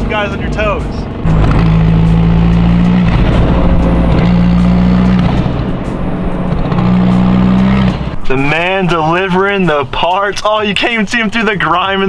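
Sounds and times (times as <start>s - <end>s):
car engine running while driven: 0.0s - 8.2s.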